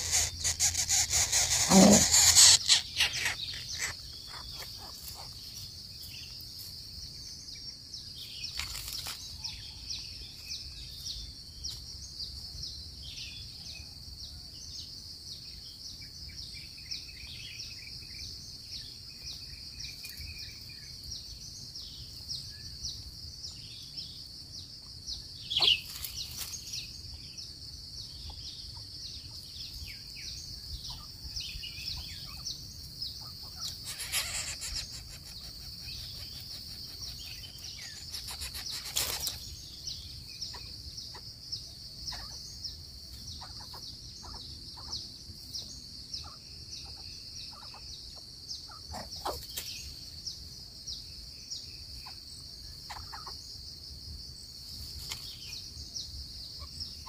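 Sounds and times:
high-pitched insect drone: 0.0 - 5.6, 33.6 - 40.6
bird chirps: 0.0 - 6.4, 16.0 - 52.3.

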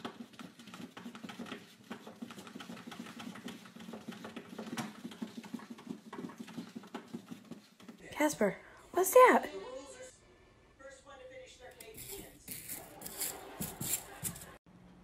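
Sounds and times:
cat scratching at a bin: 0.0 - 8.0.

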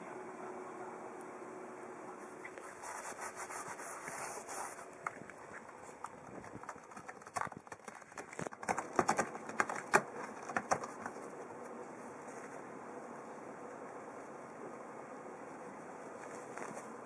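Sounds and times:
cat claws scratching cardboard: 2.7 - 11.4.

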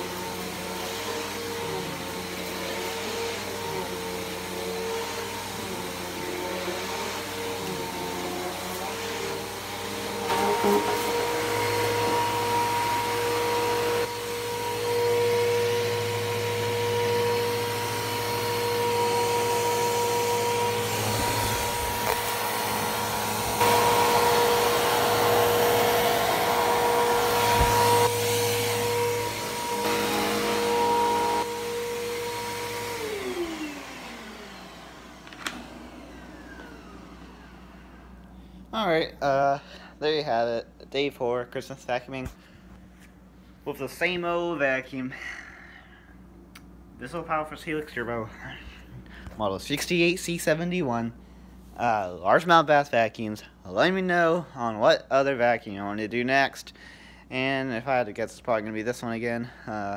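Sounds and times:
vacuum cleaner motor whine: 0.0 - 39.5.

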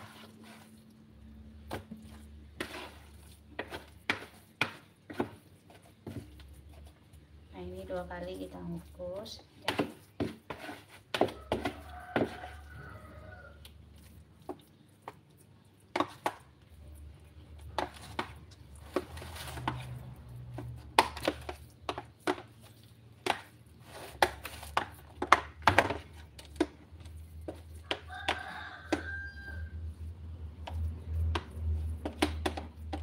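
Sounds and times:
spatula scraping plastic and metal: 1.6 - 7.0, 9.6 - 12.6, 17.6 - 29.2.

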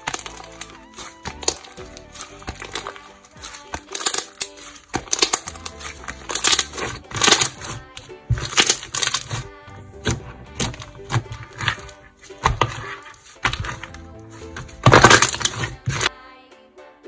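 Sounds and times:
slime crackling and squishing: 0.0 - 16.1
soft background music: 0.0 - 17.0.

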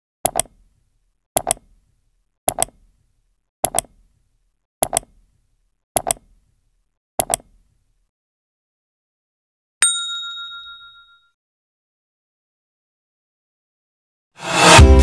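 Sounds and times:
clock-like ticking clicks: 0.2 - 0.6, 1.4 - 1.6, 2.5 - 2.8, 3.6 - 3.9, 7.2 - 7.5.

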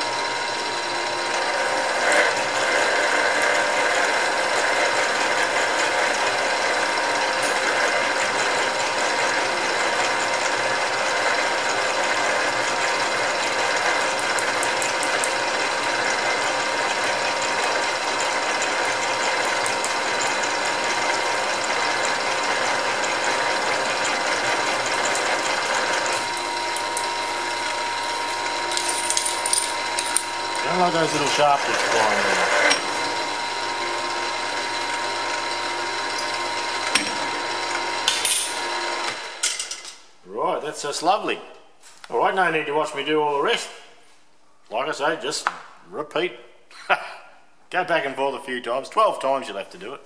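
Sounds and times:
drill bit cutting steel: 0.0 - 39.5
milling machine whine: 0.0 - 39.8
metal chips breaking off: 28.6 - 30.3.

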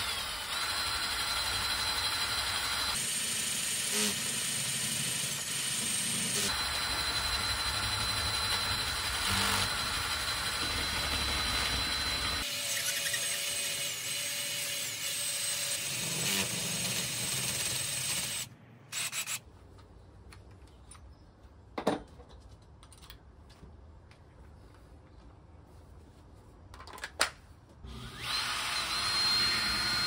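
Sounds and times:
cordless drill cutting plastic pipe: 0.0 - 19.4, 27.8 - 30.0.

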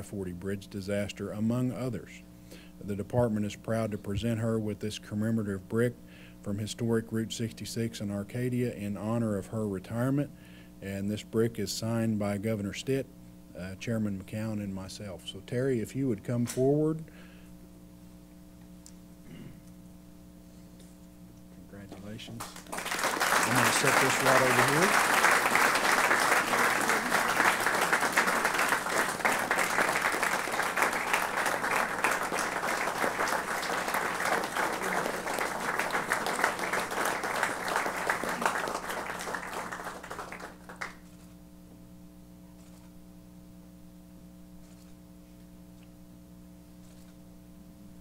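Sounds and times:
faint electrical hum: 0.0 - 48.0
people applauding: 22.4 - 41.0.

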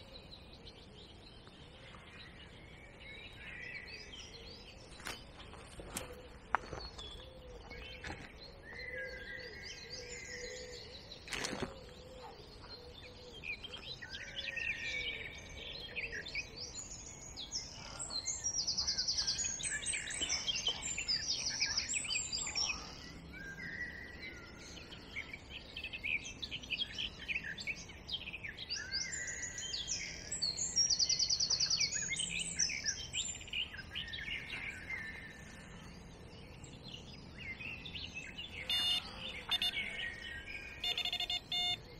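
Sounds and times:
songbirds singing: 0.0 - 41.9
high bird trill: 38.6 - 41.9.

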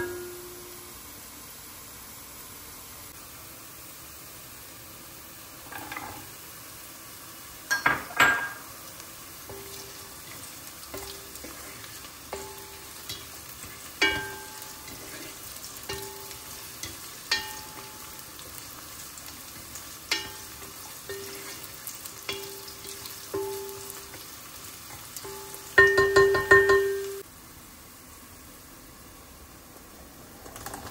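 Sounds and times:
vegetables sizzling in oil: 0.0 - 30.9
wooden spatula scraping a pot: 9.6 - 17.9, 20.1 - 21.8.

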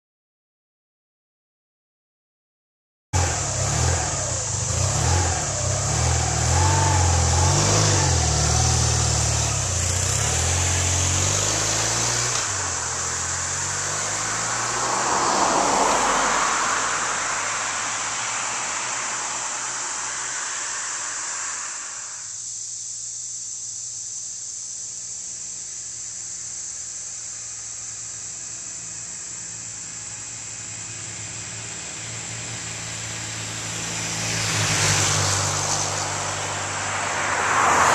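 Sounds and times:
motorcycle engine approaching: 3.2 - 22.3, 25.4 - 36.9
vehicle passing on road: 3.2 - 37.9
steady high hiss: 16.9 - 34.5.

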